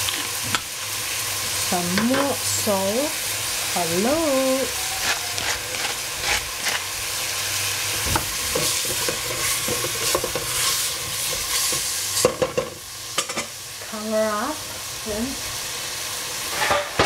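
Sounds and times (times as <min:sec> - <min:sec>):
vegetables sizzling in a pot: 0:00.0 - 0:17.0
wooden spoon scraping a pot: 0:05.0 - 0:06.9, 0:08.0 - 0:11.9.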